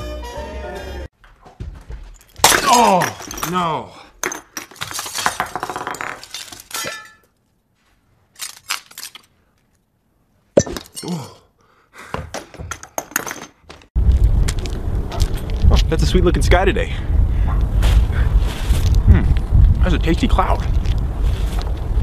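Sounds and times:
glass shards rattling on wood: 4.2s - 7.3s, 8.3s - 9.3s, 12.7s - 13.7s.

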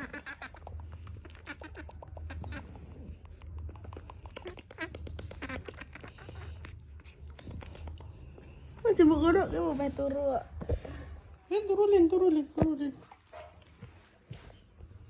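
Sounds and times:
baby monkey calling: 0.0s - 3.1s, 4.3s - 6.6s.

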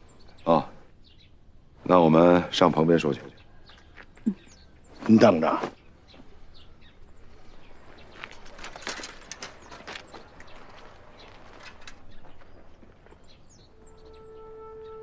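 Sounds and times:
bird chirps: 2.6s - 15.0s
bicycle parts rattling and clicking: 7.8s - 13.3s.

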